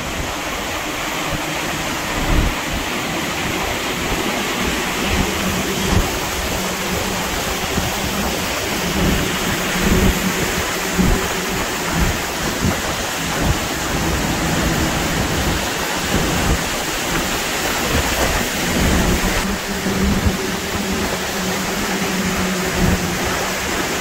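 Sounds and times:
gusts buffeting microphone: 0.0s - 24.0s
wind-blown rain rushing: 0.0s - 24.0s.

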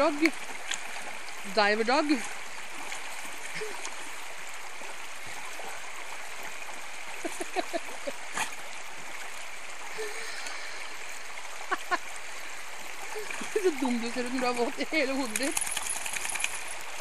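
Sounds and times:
river running over rocks: 0.0s - 17.0s
dog splashing in water: 13.0s - 17.0s.

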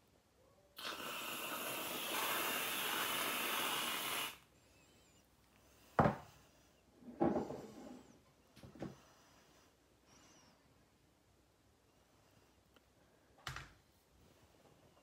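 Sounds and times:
aerosol cream can spraying: 0.8s - 4.4s.

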